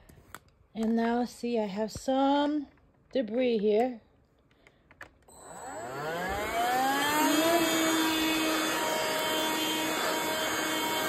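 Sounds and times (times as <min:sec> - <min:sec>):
handheld vacuum motor whine: 0:05.3 - 0:11.0.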